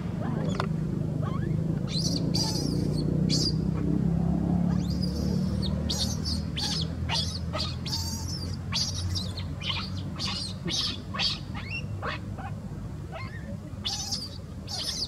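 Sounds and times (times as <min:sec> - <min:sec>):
low steady hum: 0:00.0 - 0:15.0
baby monkey squealing: 0:01.2 - 0:03.6, 0:04.7 - 0:12.5, 0:13.1 - 0:15.0.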